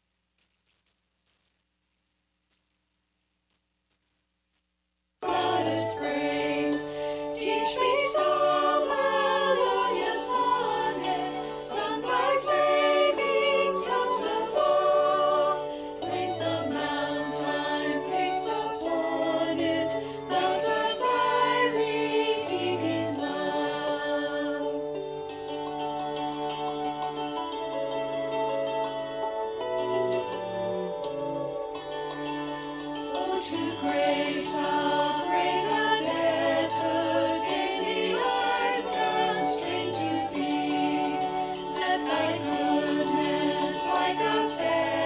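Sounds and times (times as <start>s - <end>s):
small choir singing: 5.2s - 25.1s, 29.8s - 45.0s
cello: 5.2s - 45.0s
flute: 5.2s - 45.0s
hammered dulcimer: 23.5s - 35.7s.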